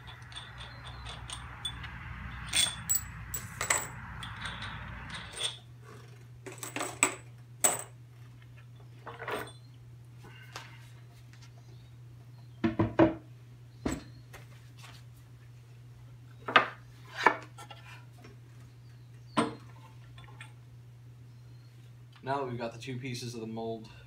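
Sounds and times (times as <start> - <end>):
metal nuts and washers clinking: 0.0 - 5.7.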